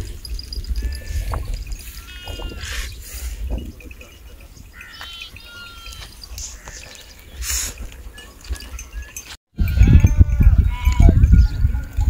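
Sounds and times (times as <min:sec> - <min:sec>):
distant sheep and goats bleating: 0:00.8 - 0:02.9, 0:04.7 - 0:07.0, 0:09.6 - 0:11.9.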